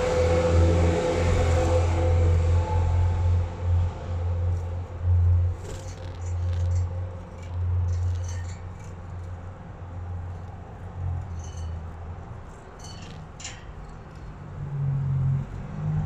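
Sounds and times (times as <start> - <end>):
loud low hum: 0.0 - 12.5.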